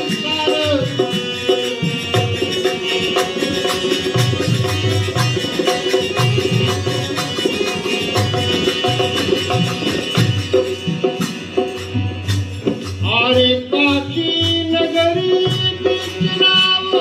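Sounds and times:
man singing: 0:00.0 - 0:04.0, 0:13.0 - 0:17.0
drum beating rhythm: 0:00.0 - 0:17.0
harmonium chords: 0:00.0 - 0:17.0.

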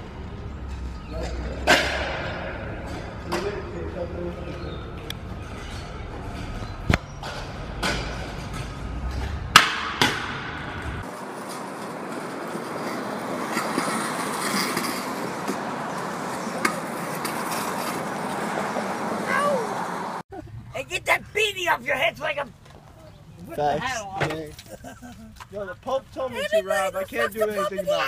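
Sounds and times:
scooter wheels rolling on concrete: 0:00.6 - 0:20.2, 0:21.0 - 0:28.0
scooter deck clacking on ground: 0:05.5 - 0:18.4.

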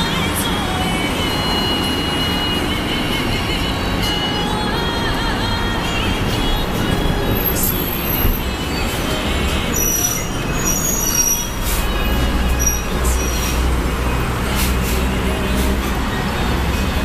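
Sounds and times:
heavy vehicle rumbling past: 0:00.0 - 0:17.0
short high-pitched squeals: 0:09.7 - 0:13.6.

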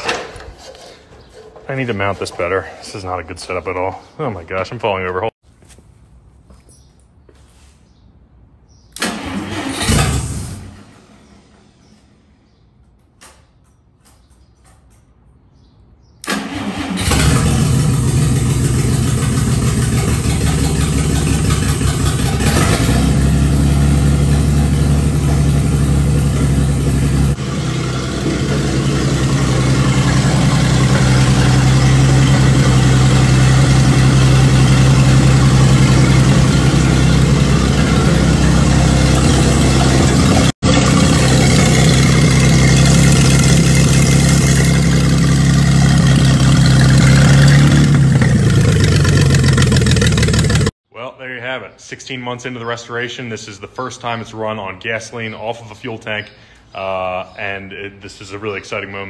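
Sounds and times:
engine running steadily: 0:16.3 - 0:50.7.

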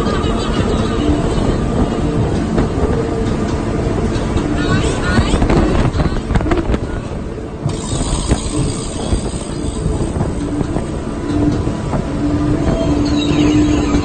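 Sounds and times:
water and wind rushing: 0:00.0 - 0:14.0
outboard motors running: 0:07.7 - 0:12.2.

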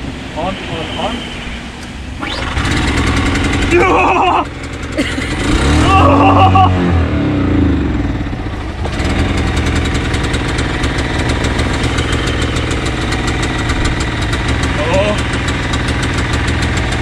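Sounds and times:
generator engine running: 0:00.0 - 0:17.0.

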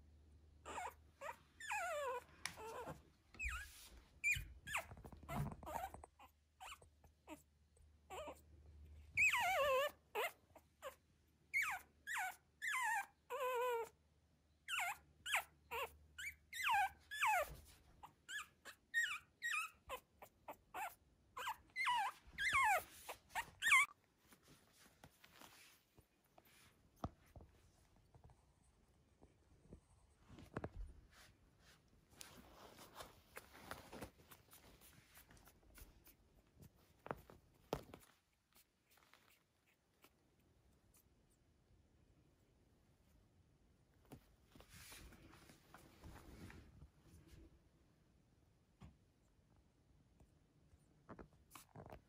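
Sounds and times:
puppy whining: 0:00.6 - 0:24.4.

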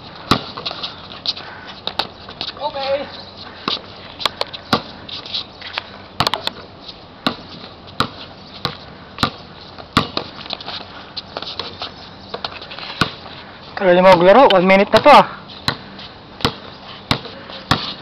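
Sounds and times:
basketball bouncing on hard court: 0:08.0 - 0:09.4, 0:10.0 - 0:10.3, 0:16.4 - 0:18.0.

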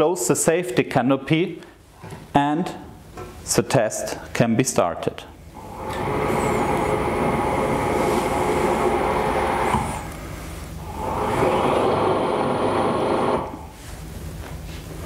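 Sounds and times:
electric motor whirring: 0:05.6 - 0:10.2, 0:10.8 - 0:13.7.

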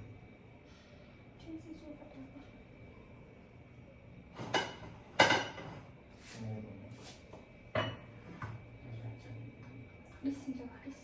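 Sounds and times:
kitchenware knocks and clinks: 0:04.4 - 0:05.9, 0:07.7 - 0:08.6.

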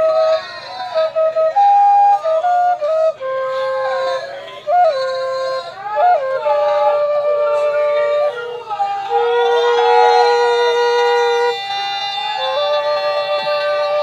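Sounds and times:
slow wind instrument melody: 0:00.0 - 0:14.0.

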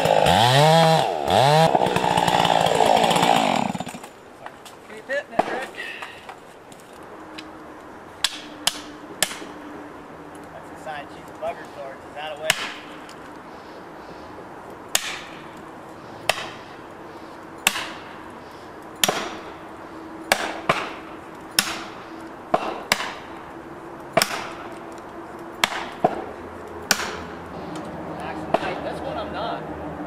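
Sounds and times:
hammer striking wedges: 0:08.2 - 0:09.5, 0:12.4 - 0:13.0, 0:14.9 - 0:15.4, 0:16.2 - 0:16.7, 0:17.6 - 0:18.2, 0:19.0 - 0:19.6, 0:20.3 - 0:23.4, 0:24.2 - 0:24.7, 0:25.6 - 0:26.3, 0:26.9 - 0:27.4.

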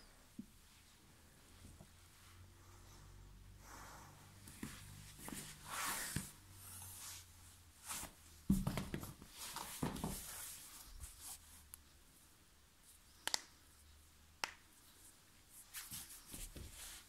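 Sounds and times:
soft knocks and shuffling: 0:04.4 - 0:11.6, 0:14.8 - 0:17.0
shoe dropping on tiled floor: 0:08.5 - 0:09.2.

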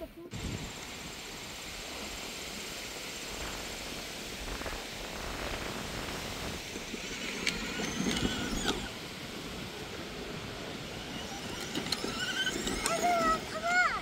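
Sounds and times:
steady background noise: 0:00.3 - 0:14.0.

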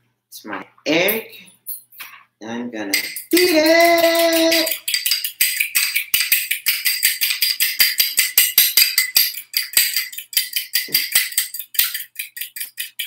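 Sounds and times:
fork clinking against glass bowl: 0:03.0 - 0:13.0.

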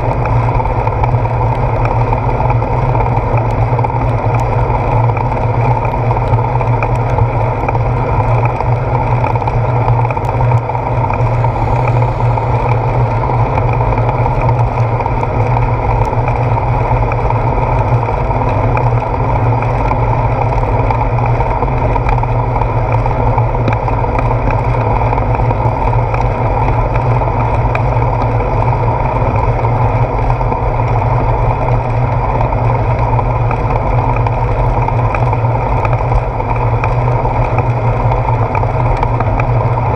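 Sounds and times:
wind and road noise: 0:00.0 - 0:39.9.

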